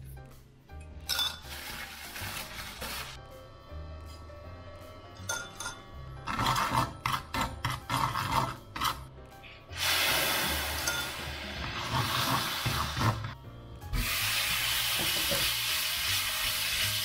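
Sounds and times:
background music: 0.0 - 17.0
spatula scraping frying pan: 6.2 - 9.1.

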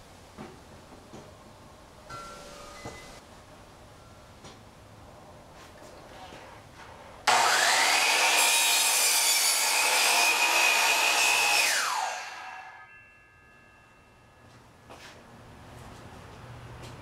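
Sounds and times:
miter saw cutting wood: 7.3 - 13.0
saw blade spinning down: 7.3 - 13.2.

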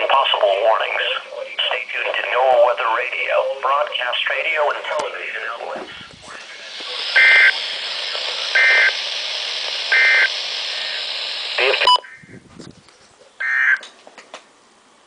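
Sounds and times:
static hiss: 0.0 - 12.0
raspy digital bursts: 6.4 - 12.0.

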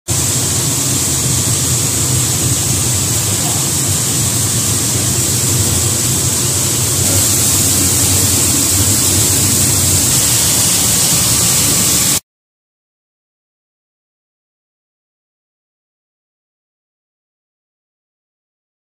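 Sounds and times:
roller mill machine running: 0.1 - 12.2.

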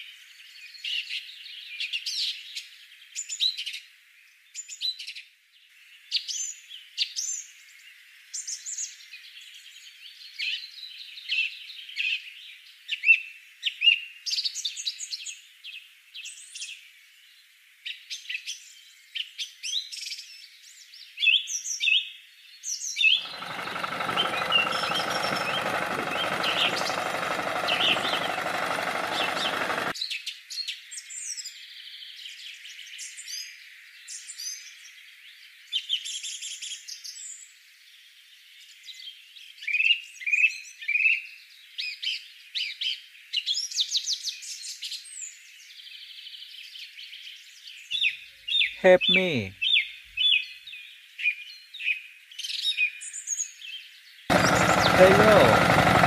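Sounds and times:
songbirds chirping: 22.5 - 29.9, 45.3 - 56.0.

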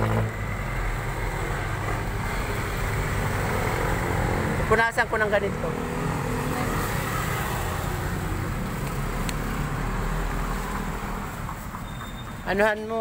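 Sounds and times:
road traffic rumble and hiss: 0.0 - 13.0.

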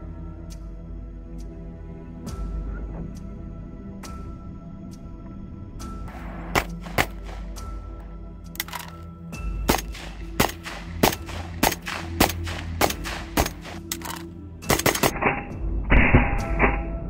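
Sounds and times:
background music: 0.0 - 17.0
rifle shots: 6.5 - 7.6, 9.7 - 15.4.

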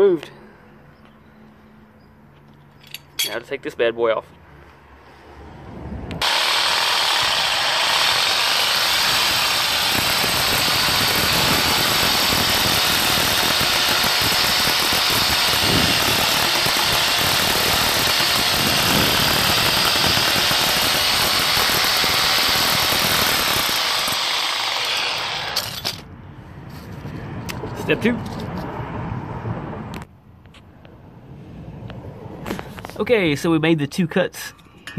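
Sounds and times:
power saw cutting metal: 6.2 - 26.0.

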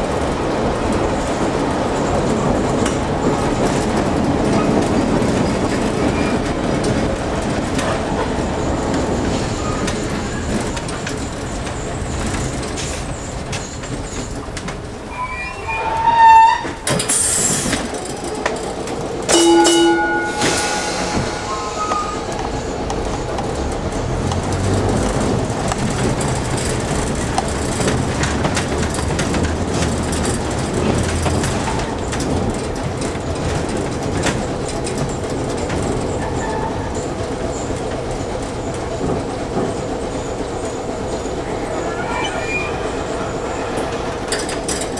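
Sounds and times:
steel wheels rumbling on rail: 0.0 - 44.9
ringing wheel squeals: 15.1 - 17.6, 19.3 - 23.4, 40.2 - 44.9.

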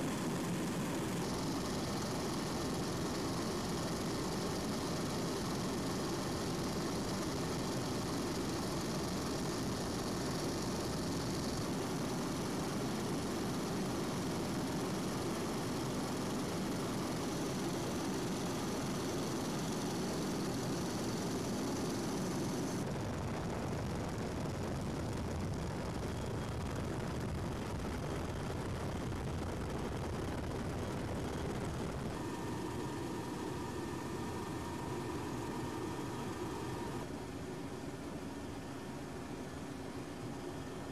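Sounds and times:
helicopter rotor and turbine: 0.0 - 40.9
steady whine: 0.0 - 40.9.

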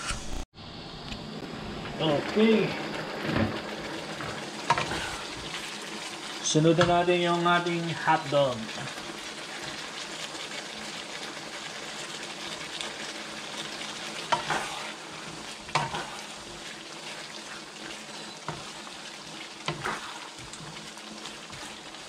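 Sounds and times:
stew sizzling and bubbling: 0.6 - 22.0
spatula stirring stew: 8.6 - 22.0.

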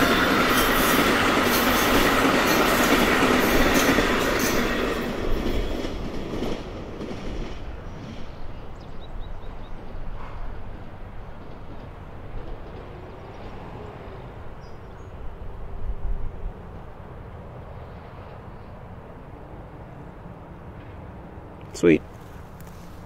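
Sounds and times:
train wheels clattering on rails: 0.0 - 8.5, 9.8 - 13.9.

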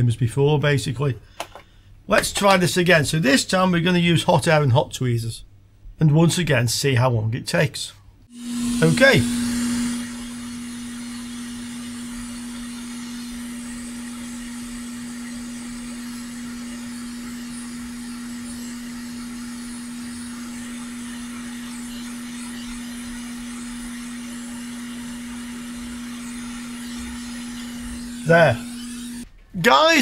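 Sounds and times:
hot air blower hissing: 8.3 - 29.3.

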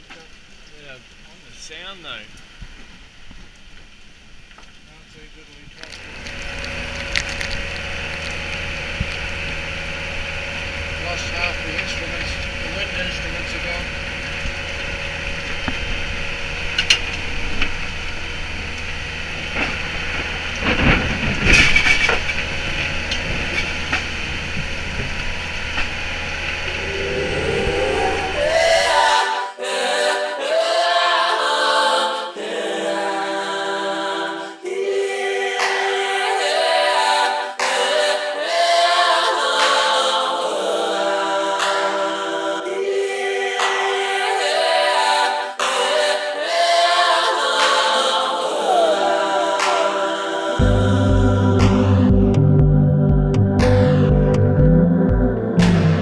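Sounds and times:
storm rush at sea: 6.0 - 29.5
song with layered singing voices: 26.5 - 56.0.

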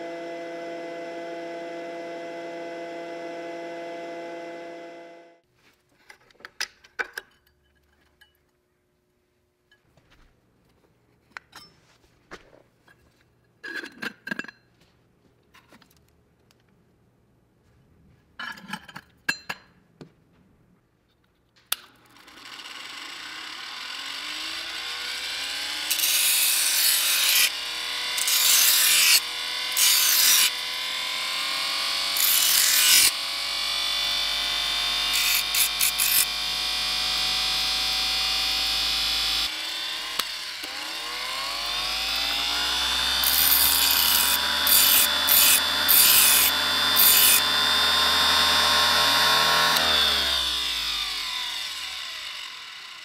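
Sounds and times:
electric motor whining: 0.0 - 5.4, 30.4 - 53.0.

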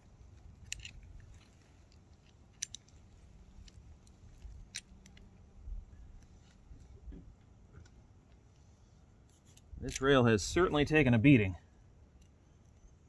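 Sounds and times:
faint metal clicks: 0.6 - 5.4.

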